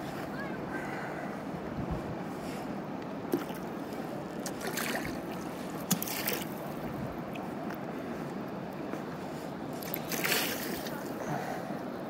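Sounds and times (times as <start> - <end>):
rushing river water: 0.0 - 12.0
paddle splashes: 3.3 - 7.8, 9.7 - 11.2.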